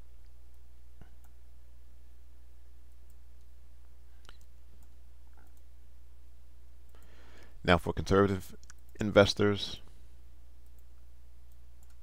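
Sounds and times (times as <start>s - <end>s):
steady low hum: 0.0s - 12.0s
computer mouse clicks: 4.2s - 5.7s, 10.6s - 12.0s.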